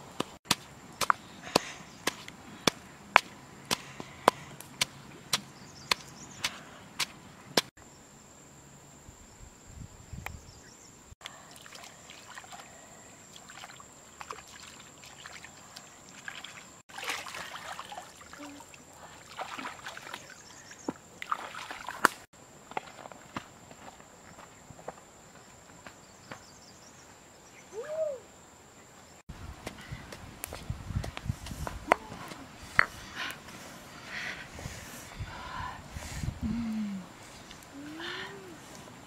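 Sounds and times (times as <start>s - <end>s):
water splashing and trickling: 11.2s - 23.1s.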